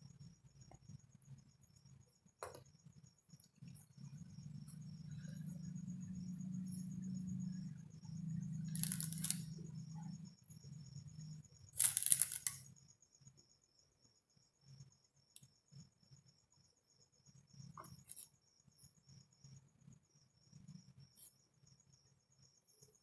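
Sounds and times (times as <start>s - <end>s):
biscuits scraping on paper: 8.7s - 9.4s, 11.8s - 12.7s.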